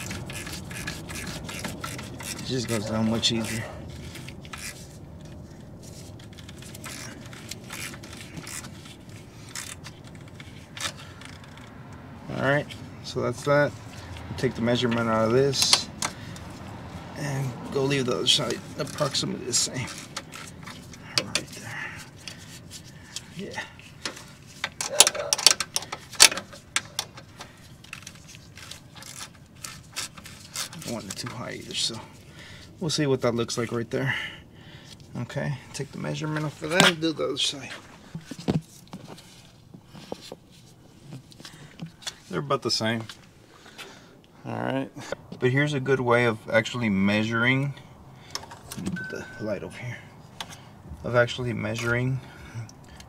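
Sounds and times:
bolt scraping: 0:00.0 - 0:12.0, 0:17.9 - 0:31.8.

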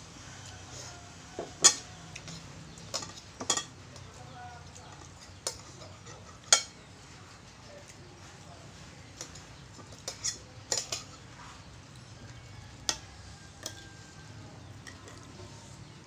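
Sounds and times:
cutlery clinking on plates: 0:01.4 - 0:06.9, 0:09.1 - 0:14.0, 0:14.6 - 0:15.5.

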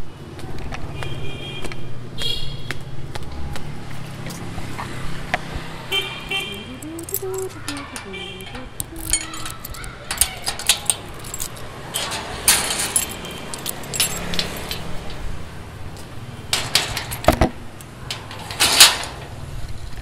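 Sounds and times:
small hard objects clinking: 0:06.2 - 0:15.3.

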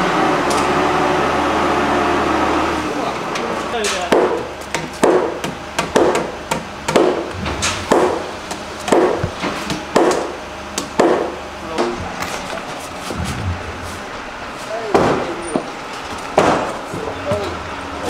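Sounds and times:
hammer striking timber: 0:04.1 - 0:11.9, 0:14.9 - 0:15.7, 0:16.4 - 0:16.8.

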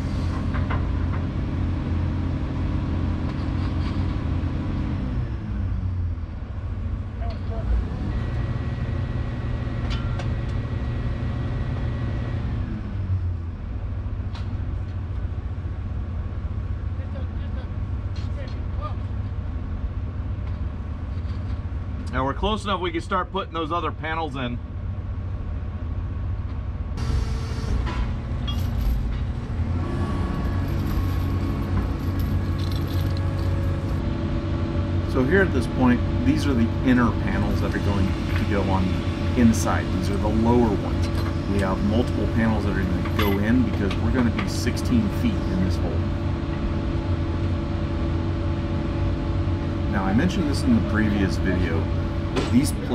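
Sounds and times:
excavator diesel engine under load: 0:00.0 - 0:17.0, 0:24.8 - 0:52.9
steady high whine: 0:30.6 - 0:52.9.

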